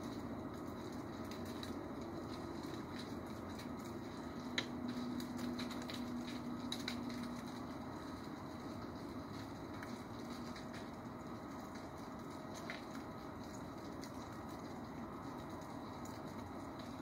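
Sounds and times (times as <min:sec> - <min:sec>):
outdoor background hum: 0:00.0 - 0:17.0
light ticks: 0:01.2 - 0:07.6.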